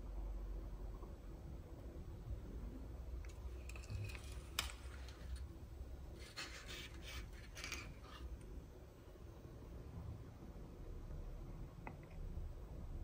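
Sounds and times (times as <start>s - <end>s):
rustling scrape: 6.1s - 8.4s.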